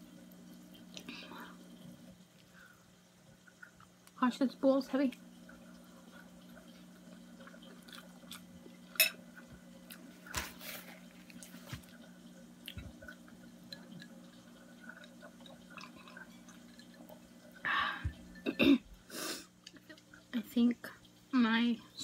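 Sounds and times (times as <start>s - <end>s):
person chewing food: 7.4s - 13.2s.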